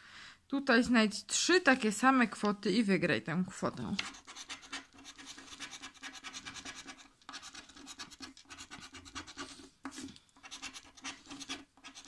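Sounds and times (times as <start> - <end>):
scraper scratching lottery ticket: 4.0 - 9.7, 10.4 - 12.0.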